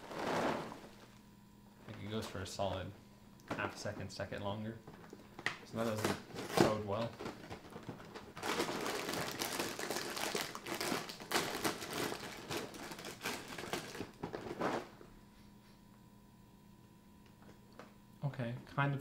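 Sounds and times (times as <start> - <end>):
plastic bag crinkling: 0.0 - 1.1, 7.2 - 14.9.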